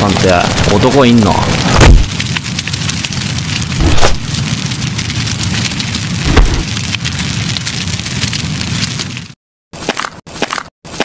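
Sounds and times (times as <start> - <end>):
campfire crackling: 0.0 - 11.0
deep thuds: 1.7 - 2.1.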